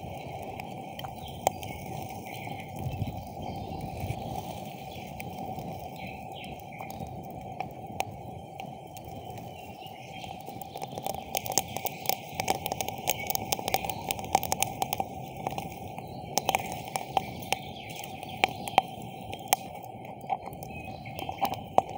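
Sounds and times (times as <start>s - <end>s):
campfire crackling and hissing: 0.0s - 21.9s
fire pops and cracks: 0.0s - 21.9s.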